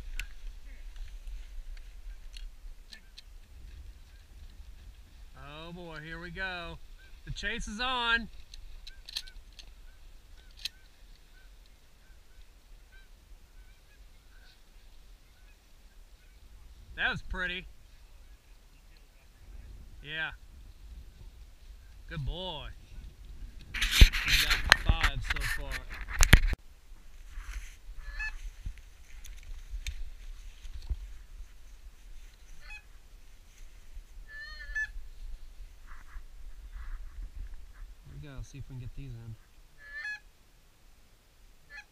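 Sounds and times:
wind rumble on microphone: 0:00.0 - 0:05.4, 0:19.2 - 0:39.3
geese honking: 0:06.8 - 0:08.2, 0:08.8 - 0:16.4, 0:28.0 - 0:28.4, 0:32.5 - 0:33.0, 0:34.2 - 0:35.0, 0:39.3 - 0:40.3, 0:41.7 - 0:41.9.

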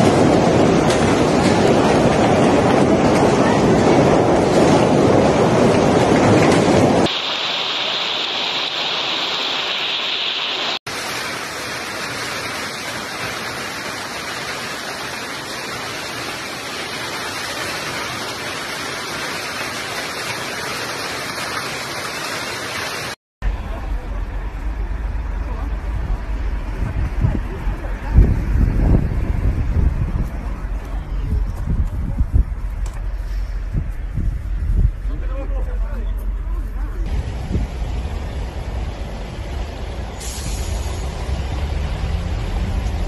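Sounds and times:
hail pelting on pavement: 0:10.9 - 0:23.2.

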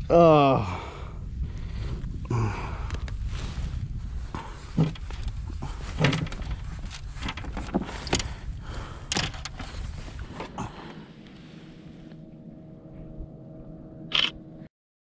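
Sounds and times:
wind noise on microphone: 0:00.0 - 0:10.8.

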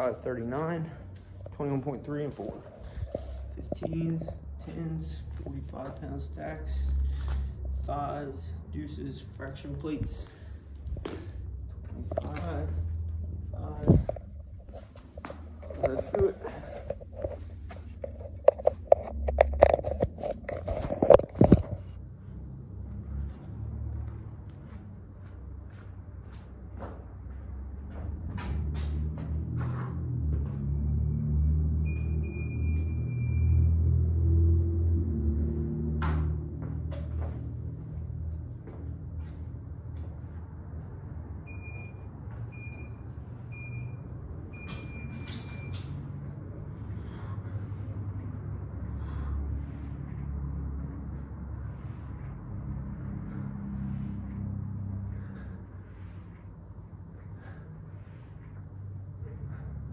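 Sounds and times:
low room hum: 0:00.0 - 0:59.9
electronic timer beeps: 0:31.8 - 0:33.9, 0:41.5 - 0:45.9.

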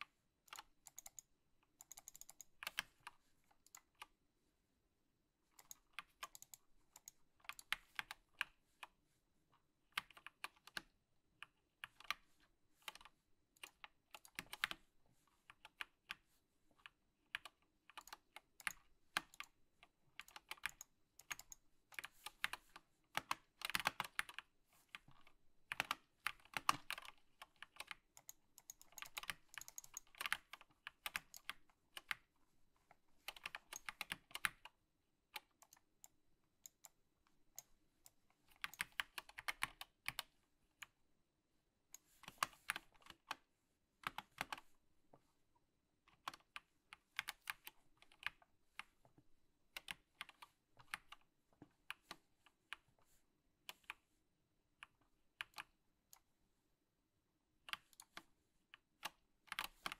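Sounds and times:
mechanical keyboard typing: 0:00.5 - 0:03.0, 0:05.6 - 0:08.3, 0:12.9 - 0:14.8, 0:17.3 - 0:19.6, 0:20.2 - 0:24.5, 0:25.3 - 0:32.3, 0:33.2 - 0:34.7, 0:38.5 - 0:40.4, 0:58.9 - 0:59.9.

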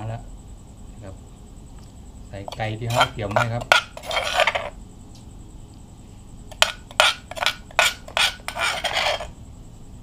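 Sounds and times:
metal spoon scraping stone mortar: 0:02.4 - 0:04.8, 0:06.5 - 0:09.4.

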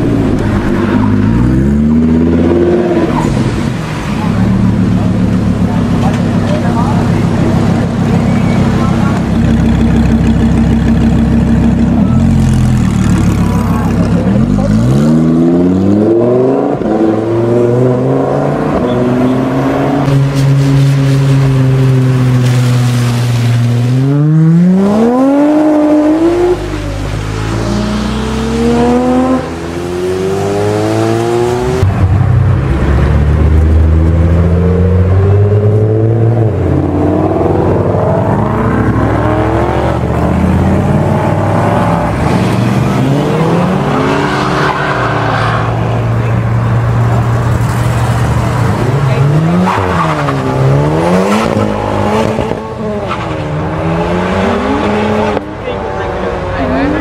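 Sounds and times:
cars accelerating hard: 0:00.0 - 0:57.0.

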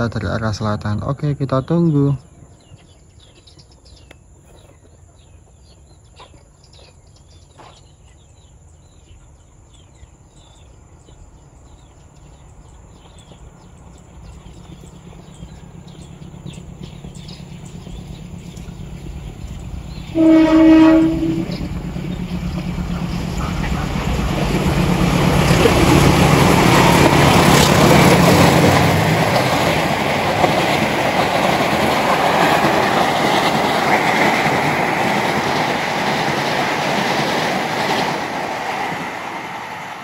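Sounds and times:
train rumbling: 0:00.0 - 0:40.0
train horn blast: 0:20.0 - 0:21.8.

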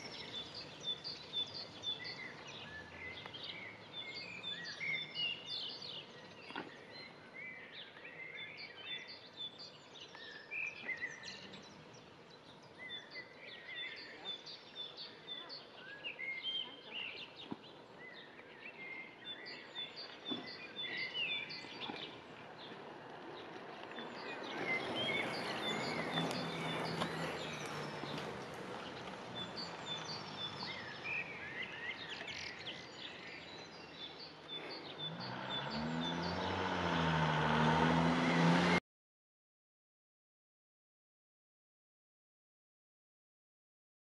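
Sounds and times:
small birds chirping: 0:00.0 - 0:38.8
low engine hum: 0:21.6 - 0:33.0, 0:34.6 - 0:38.8
motor vehicle passing: 0:21.8 - 0:33.0, 0:34.2 - 0:38.8.

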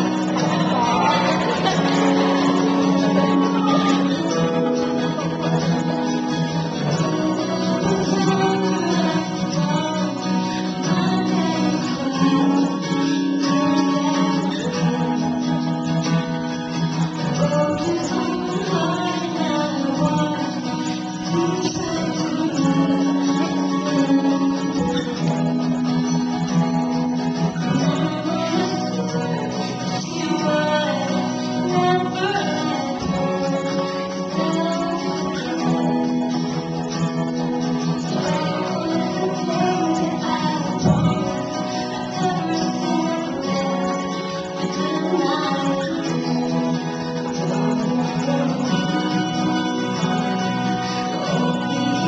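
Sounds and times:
woman singing into a microphone: 0:00.0 - 0:05.0, 0:06.8 - 0:15.7, 0:17.2 - 0:25.6, 0:27.6 - 0:36.2, 0:38.1 - 0:50.0
guitar accompaniment: 0:00.0 - 0:52.0.

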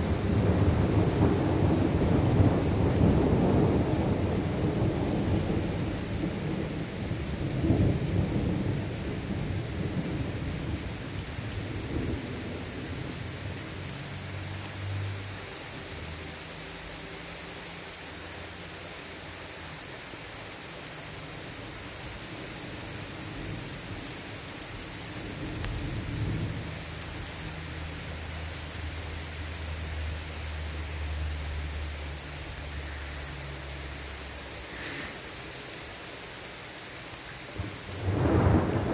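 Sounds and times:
thunder rumbling: 0:00.0 - 0:13.6, 0:37.6 - 0:38.9
rain hissing: 0:00.0 - 0:38.9.

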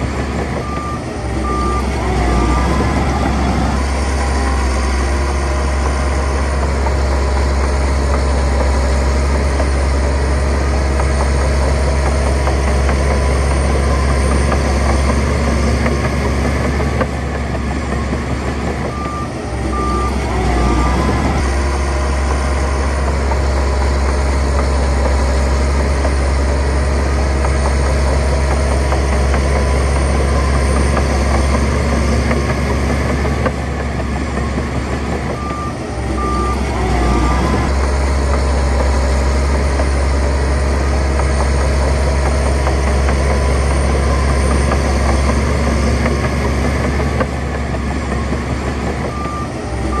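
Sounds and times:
diesel engine running: 0:00.0 - 0:50.0
reversing alarm beeping: 0:00.2 - 0:10.1, 0:11.5 - 0:23.6, 0:34.2 - 0:39.9, 0:41.6 - 0:50.0.

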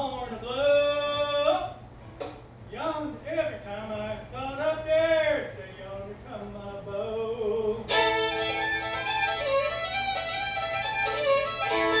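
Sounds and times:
fiddle playing a tune: 0:07.9 - 0:12.0.

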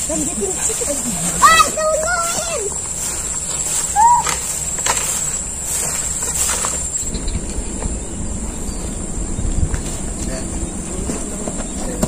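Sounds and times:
footsteps scuffing through grass: 0:00.0 - 0:07.2
insects buzzing: 0:00.0 - 0:12.0.

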